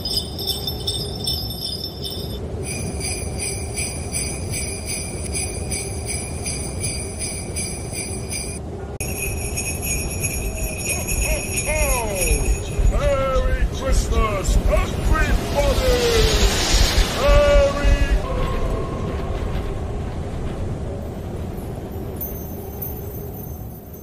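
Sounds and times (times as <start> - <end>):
sleigh bells jingling: 0.0 - 16.6, 22.0 - 24.0
low rushing noise: 0.0 - 22.2.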